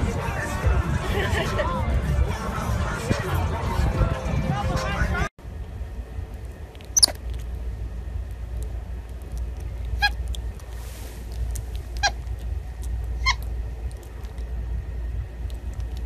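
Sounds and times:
low rumble: 0.0 - 16.0
monkey squeaking: 6.9 - 7.2, 9.9 - 10.4, 11.9 - 12.4, 13.1 - 13.5.

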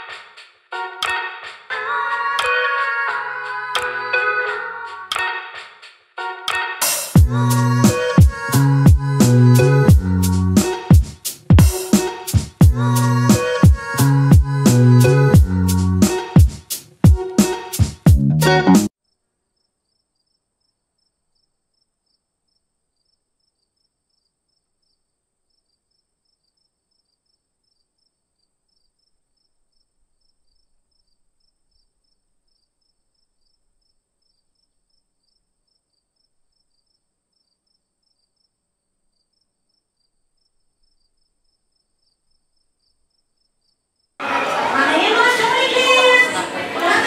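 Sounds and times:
background music: 0.0 - 18.9.

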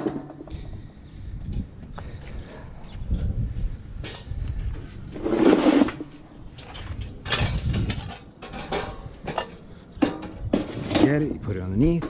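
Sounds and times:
metal hand truck clattering: 5.6 - 12.0.

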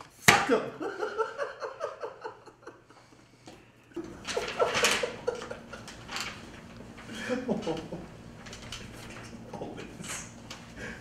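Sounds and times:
man laughing: 0.7 - 2.9, 4.0 - 6.0, 7.0 - 8.2.

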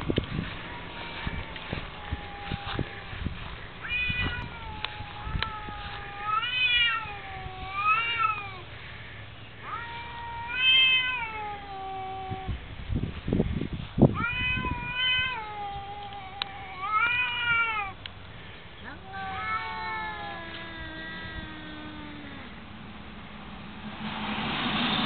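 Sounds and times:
cats yowling: 0.6 - 3.1, 3.8 - 8.7, 9.6 - 12.6, 14.2 - 18.0, 18.8 - 22.9.

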